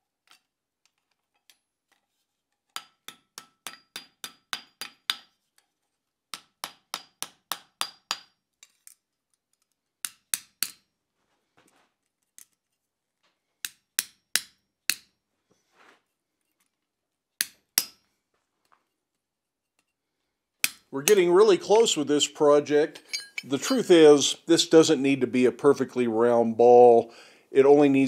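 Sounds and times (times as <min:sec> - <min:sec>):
hammer striking steel on anvil: 0:02.8 - 0:05.3, 0:23.0 - 0:23.8.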